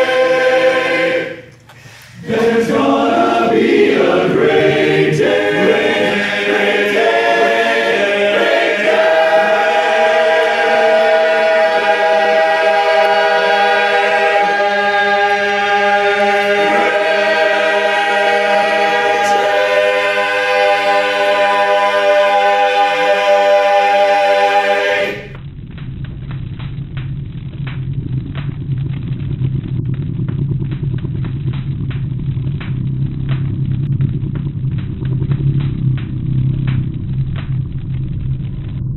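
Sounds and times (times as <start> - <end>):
male chorus singing in harmony: 0.0 - 1.5, 2.2 - 25.4.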